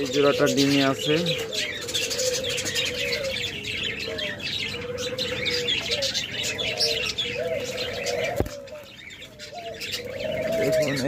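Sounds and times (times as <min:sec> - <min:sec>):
doves cooing: 0:00.0 - 0:11.0.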